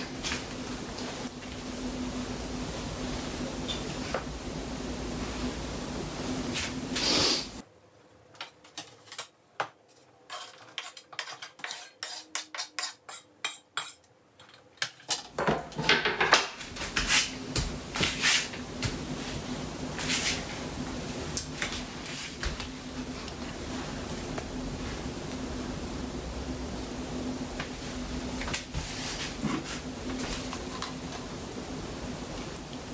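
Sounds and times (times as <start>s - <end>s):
utensils clinking and scraping: 10.0s - 16.1s.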